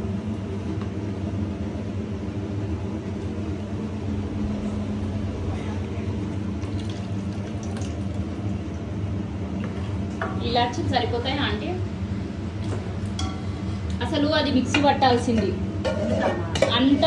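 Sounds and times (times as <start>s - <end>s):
low hum: 0.0s - 14.7s
thick syrup pouring: 6.1s - 8.8s.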